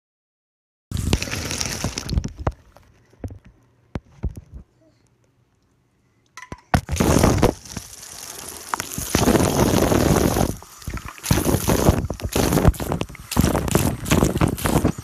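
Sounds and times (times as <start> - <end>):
shower water spraying on microphone: 0.9 - 2.3, 6.9 - 15.0.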